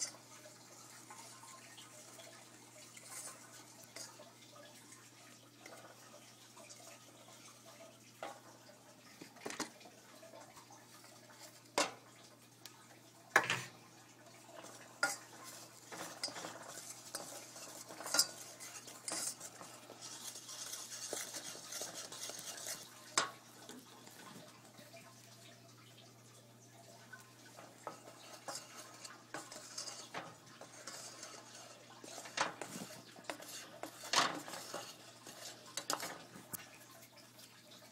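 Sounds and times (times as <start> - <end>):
utensil clinking against metal pot: 11.0 - 12.0, 14.5 - 24.4, 27.1 - 36.7.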